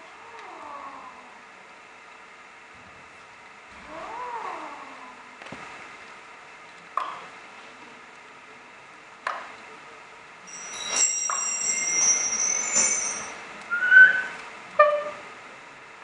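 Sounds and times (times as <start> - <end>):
high ringing tones: 10.4 - 14.4
short gliding tone: 10.5 - 15.2.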